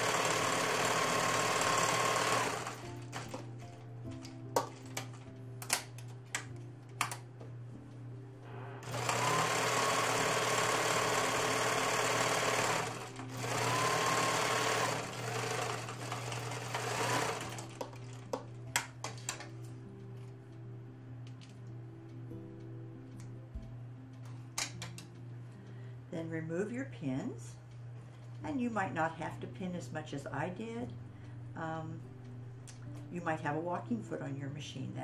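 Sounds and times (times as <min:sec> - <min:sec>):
sewing machine stitching: 0:00.0 - 0:03.5, 0:08.8 - 0:18.2.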